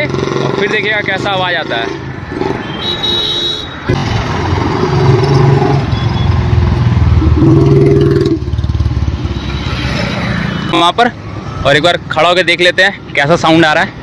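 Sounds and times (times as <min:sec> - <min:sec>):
motorcycle engine accelerating: 0:06.7 - 0:09.3.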